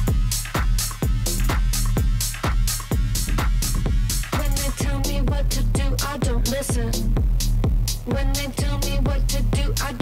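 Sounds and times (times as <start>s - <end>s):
crisp hi-hats: 0.0s - 10.0s
four-on-the-floor kick drum: 0.0s - 10.0s
vocal line: 4.2s - 7.2s.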